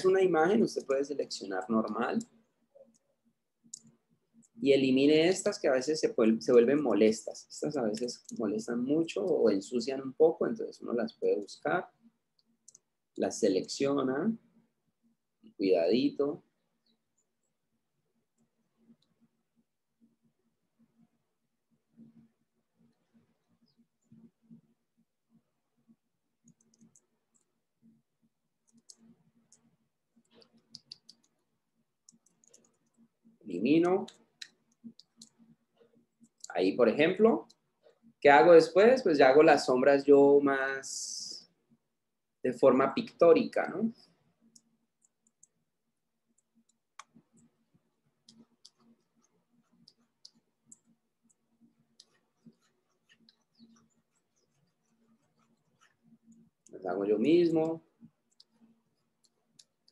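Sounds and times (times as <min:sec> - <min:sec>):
faint low hum: 0:00.0 - 0:59.9
computer mouse clicks: 0:03.7 - 0:04.6, 0:07.8 - 0:08.4, 0:12.4 - 0:12.9, 0:26.4 - 0:27.5, 0:28.6 - 0:33.1, 0:33.8 - 0:36.5, 0:44.0 - 0:45.6, 0:48.2 - 0:56.7, 0:57.6 - 0:59.9.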